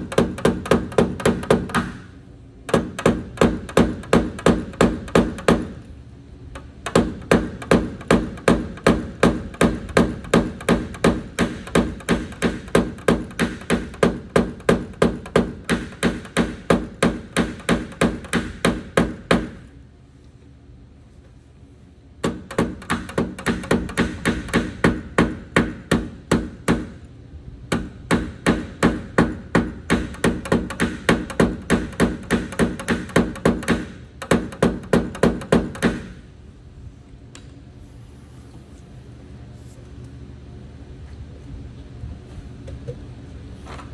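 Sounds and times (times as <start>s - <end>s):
hammer tapping punch on metal: 0.0s - 2.1s, 2.7s - 5.8s, 6.5s - 19.6s, 22.2s - 27.0s, 27.7s - 36.2s.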